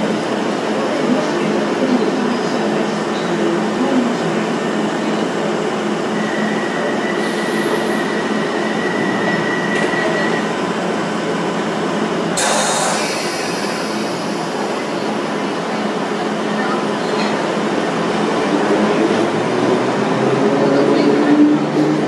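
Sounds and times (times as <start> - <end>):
train humming at platform: 0.0 - 22.0
train doors closing: 5.0 - 11.3, 12.3 - 16.2
burst of hiss: 12.4 - 14.6.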